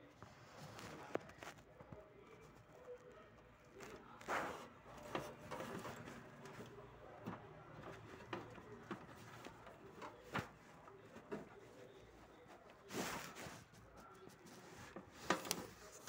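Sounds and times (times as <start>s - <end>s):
faint clicks and taps: 0.0s - 16.0s.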